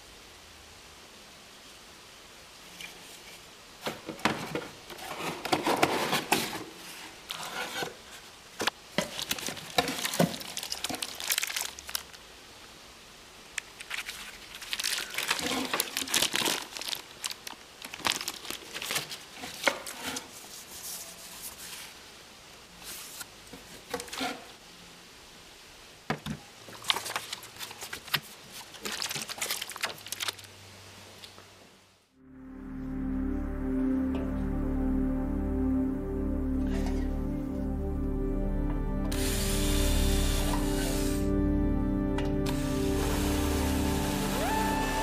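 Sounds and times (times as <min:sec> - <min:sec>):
plastic bags crinkling: 0:09.0 - 0:12.2, 0:13.6 - 0:20.0, 0:26.7 - 0:30.6.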